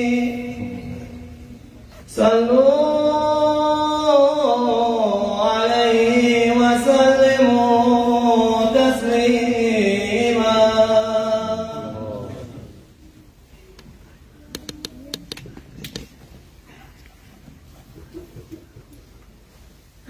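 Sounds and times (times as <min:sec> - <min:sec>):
man chanting: 0:00.0 - 0:12.8.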